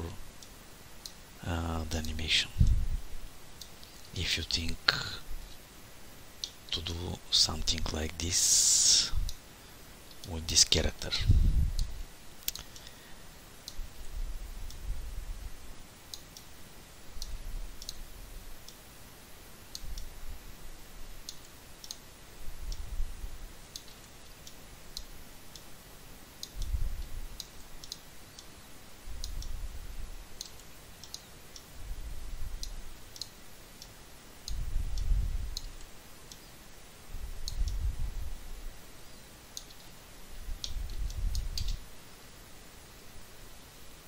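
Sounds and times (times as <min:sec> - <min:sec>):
computer mouse clicking: 0:17.2 - 0:18.0, 0:19.7 - 0:20.1, 0:21.2 - 0:22.0, 0:23.7 - 0:25.7, 0:26.4 - 0:28.5, 0:29.2 - 0:29.6, 0:30.4 - 0:31.7, 0:32.6 - 0:36.5, 0:37.4 - 0:37.8, 0:39.5 - 0:40.0, 0:40.6 - 0:41.8.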